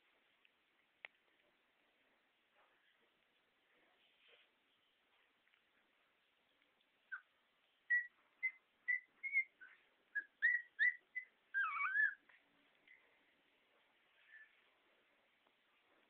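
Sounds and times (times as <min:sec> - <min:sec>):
puppy whining: 0:07.0 - 0:12.4
puppies squealing: 0:07.9 - 0:12.3.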